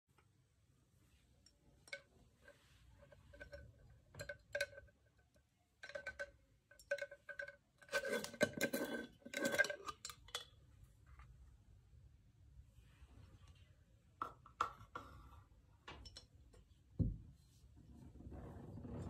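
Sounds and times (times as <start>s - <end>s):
metal lid scraping off glass: 7.9s - 10.0s.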